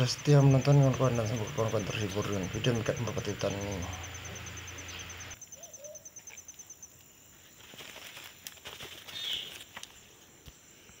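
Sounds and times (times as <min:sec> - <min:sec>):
faint forest ambience: 0:00.0 - 0:11.0
bird call: 0:03.9 - 0:06.4, 0:09.1 - 0:09.6.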